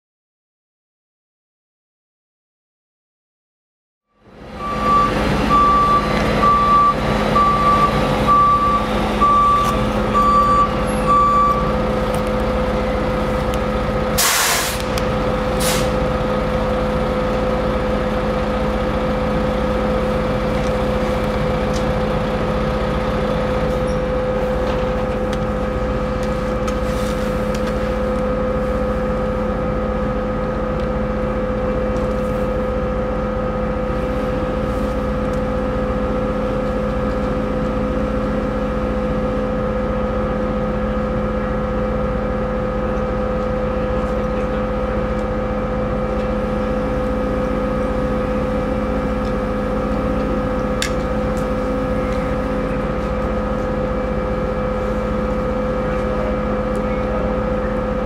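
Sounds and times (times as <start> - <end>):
ship engines droning: 4.2 - 58.0
short warning beeps: 4.6 - 11.8
air brakes hissing: 14.2 - 16.1.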